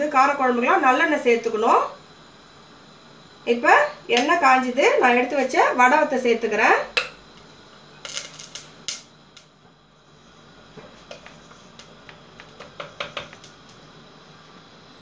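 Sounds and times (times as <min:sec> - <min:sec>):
frying in oil crackling: 0:03.6 - 0:09.6, 0:10.6 - 0:14.1.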